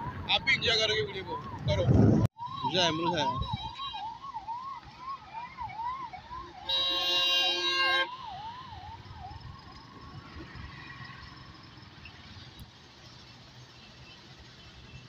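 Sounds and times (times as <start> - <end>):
siren wailing: 0.0 - 11.1
traffic noise: 0.0 - 15.0
vehicle horn blaring: 6.6 - 8.2.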